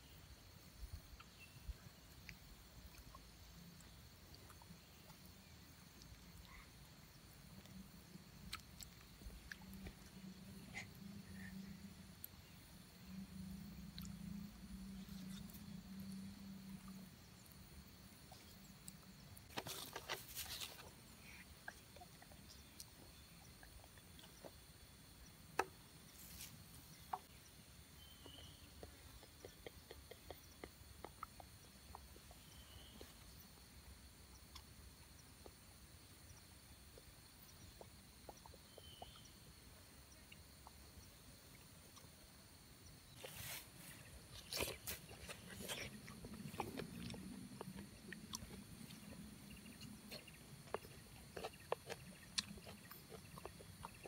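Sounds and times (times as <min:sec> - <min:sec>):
faint insect drone: 0:00.0 - 0:54.0
food handling clicks and rustles: 0:19.5 - 0:20.9.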